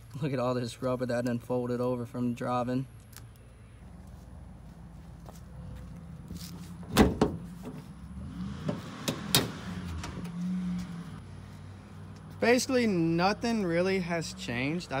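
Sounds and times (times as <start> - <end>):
car hood unlatching and opening: 6.8 - 7.9, 8.6 - 10.4.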